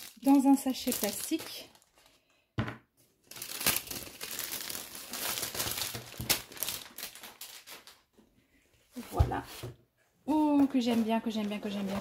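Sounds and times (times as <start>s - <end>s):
plastic bag crinkling: 0.0s - 2.2s, 3.2s - 8.0s.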